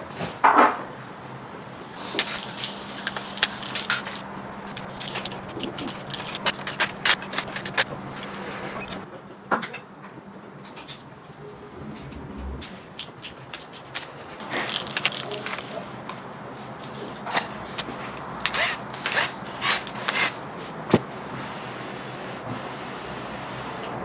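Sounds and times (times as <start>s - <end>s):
steady low hum: 1.5s - 9.1s, 11.2s - 18.5s
metal tools clinking: 2.0s - 9.0s, 12.6s - 17.8s.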